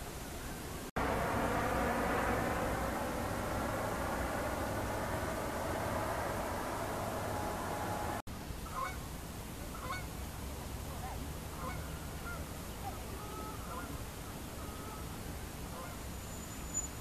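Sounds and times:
low background rumble: 1.0s - 8.3s.

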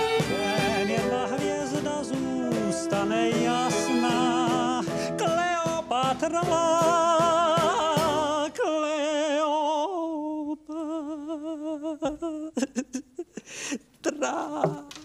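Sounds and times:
instrumental accompaniment: 0.0s - 8.4s
man singing a ballad: 0.0s - 13.0s, 14.0s - 15.0s.

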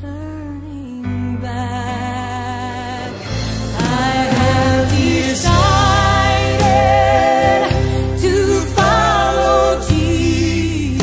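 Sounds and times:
backing chords and bass: 0.0s - 11.0s
gospel singing: 2.4s - 11.0s.

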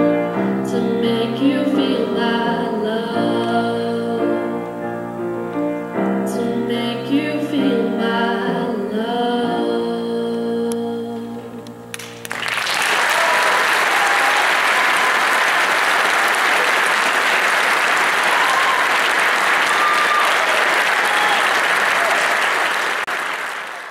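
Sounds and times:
audience applause: 11.9s - 23.9s.

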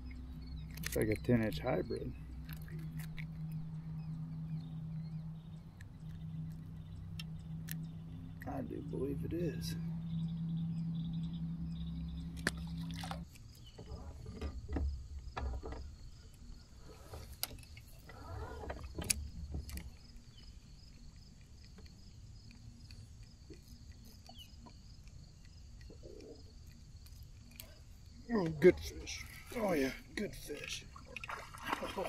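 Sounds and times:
low rumble: 0.0s - 16.8s.

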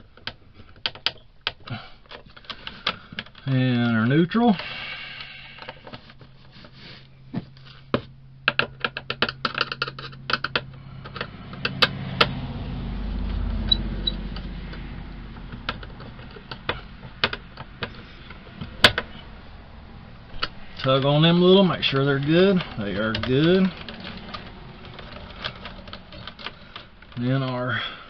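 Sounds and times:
hand tool clicking on terminals: 8.5s - 12.4s, 13.2s - 19.2s, 20.3s - 27.6s.

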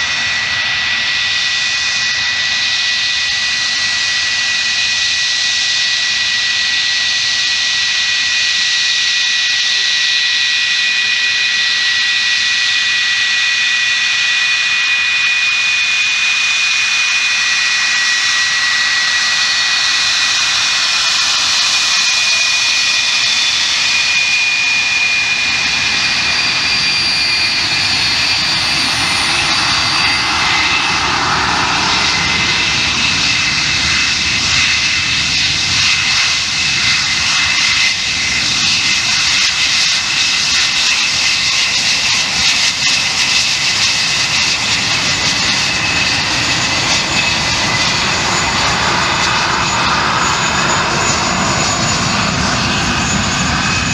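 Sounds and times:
jet engine whine: 0.0s - 53.9s
deep jet rumble: 17.8s - 53.9s.

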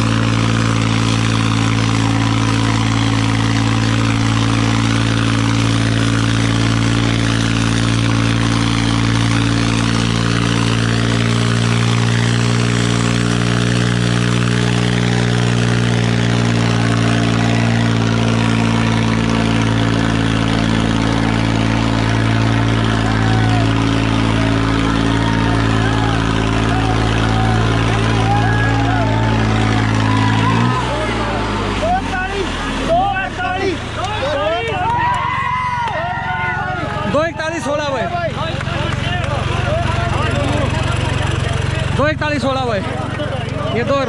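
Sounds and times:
tractor diesel engine drone: 0.0s - 44.0s.

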